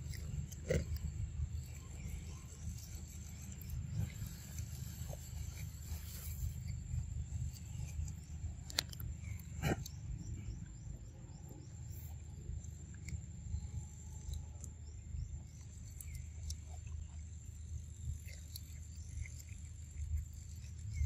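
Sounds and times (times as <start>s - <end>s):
faint chirps: 0.0s - 21.0s.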